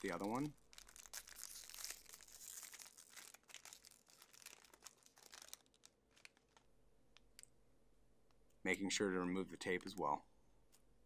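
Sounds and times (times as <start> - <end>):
packaging tearing and crinkling: 0.0 - 6.6.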